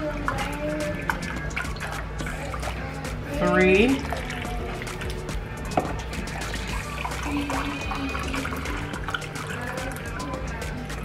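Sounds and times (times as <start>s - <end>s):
background music: 0.0s - 11.0s
liquid pouring into a glass cup: 3.9s - 10.5s.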